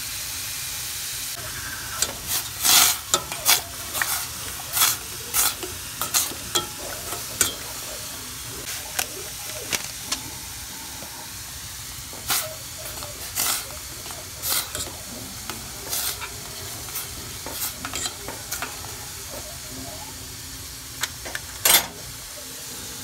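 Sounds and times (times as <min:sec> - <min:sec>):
steady hiss: 0:00.0 - 0:23.0
metal spoon scraping pot: 0:01.6 - 0:08.1, 0:12.1 - 0:19.4.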